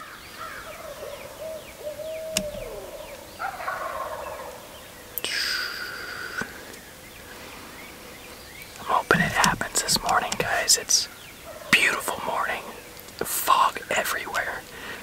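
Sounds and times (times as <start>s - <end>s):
small birds chirping: 0.0s - 15.0s
wild turkey gobbling: 0.4s - 4.7s.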